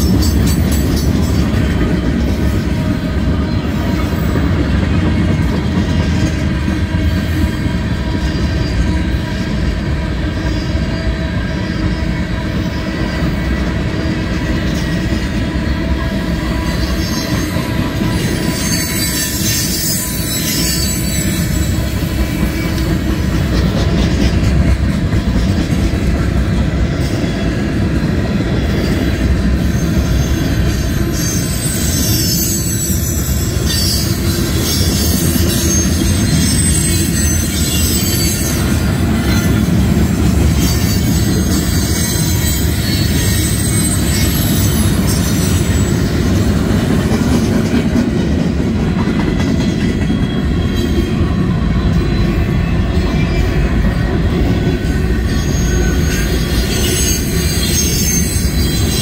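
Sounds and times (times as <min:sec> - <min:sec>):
train wheels rumbling on rail: 0:00.0 - 0:59.0
high-pitched wheel squeal: 0:16.5 - 0:22.8, 0:28.8 - 0:39.8, 0:40.4 - 0:46.2, 0:55.2 - 0:59.0.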